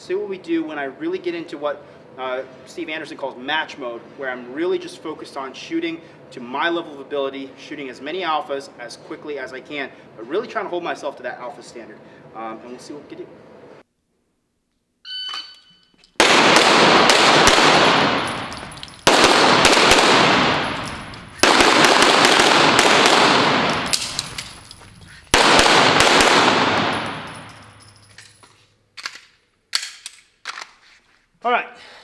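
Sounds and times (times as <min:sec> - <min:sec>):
shot timer beep: 0:15.0 - 0:15.8
pistol shots ringing: 0:16.2 - 0:28.0
pistol handling clicks: 0:17.6 - 0:24.7, 0:29.0 - 0:30.7.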